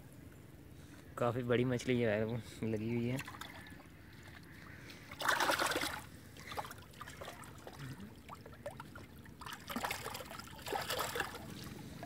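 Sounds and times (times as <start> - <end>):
fish thrashing and splashing in water: 3.2 - 12.0.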